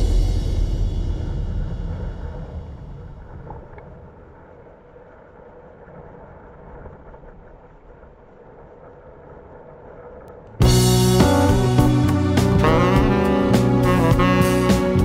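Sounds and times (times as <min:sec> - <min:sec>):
wind rumbling on microphone: 0:00.0 - 0:10.6
choppy sea water: 0:00.1 - 0:10.6.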